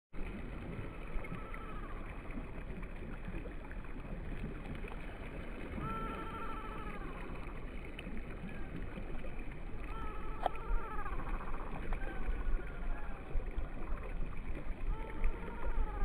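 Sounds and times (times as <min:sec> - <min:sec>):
small waves lapping on shore: 0:00.2 - 0:16.0
faint wavering tone: 0:00.4 - 0:02.8, 0:05.6 - 0:16.0.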